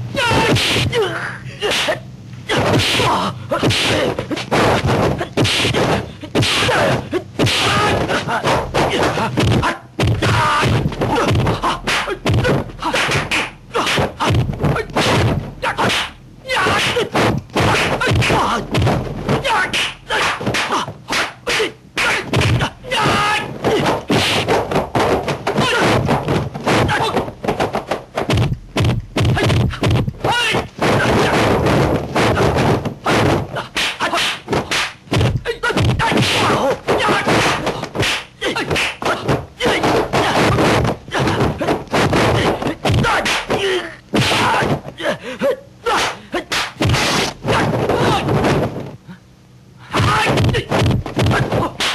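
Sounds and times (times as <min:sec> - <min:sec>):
fighters gasping and crying out: 0:00.2 - 0:04.5, 0:35.4 - 0:46.5
punch and kick thwacks: 0:00.3 - 0:00.9, 0:02.5 - 0:44.9, 0:45.9 - 0:48.9, 0:50.0 - 0:51.9
fighter shouting: 0:06.5 - 0:13.1, 0:13.8 - 0:18.7, 0:19.4 - 0:24.0, 0:26.8 - 0:27.3, 0:30.2 - 0:31.4, 0:35.4 - 0:46.6, 0:47.5 - 0:48.3, 0:49.8 - 0:50.7, 0:51.3 - 0:51.9.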